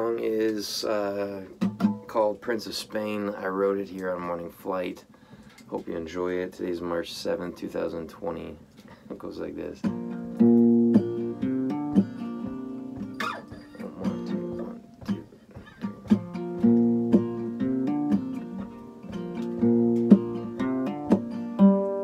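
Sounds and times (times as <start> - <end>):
acoustic guitar strumming: 0.0 - 3.7, 9.7 - 22.0.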